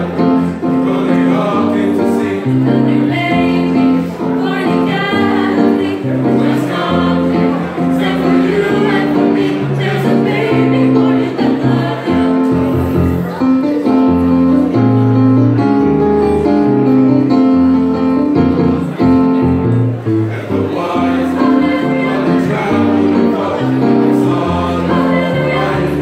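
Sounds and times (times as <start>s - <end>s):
choir singing in harmony: 0.0s - 14.2s, 20.1s - 26.0s.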